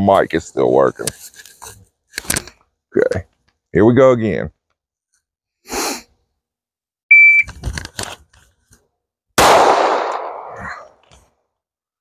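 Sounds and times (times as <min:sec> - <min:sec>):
shot timer beep: 0:07.1 - 0:07.5
pistol shot: 0:09.4 - 0:10.7.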